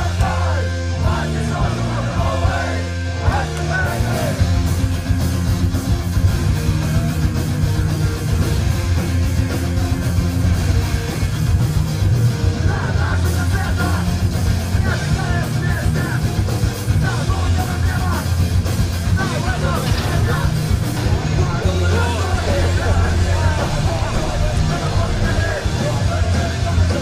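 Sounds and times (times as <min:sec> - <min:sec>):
distorted electric guitars: 0:00.0 - 0:27.0
drums: 0:00.0 - 0:27.0
punk rock music: 0:00.0 - 0:27.0
person singing: 0:19.2 - 0:27.0.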